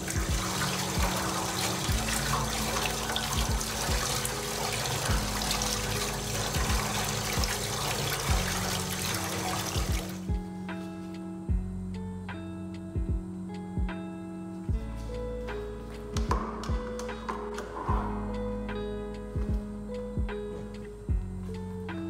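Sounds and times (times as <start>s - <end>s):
tap water running into a sink: 0.0s - 10.2s.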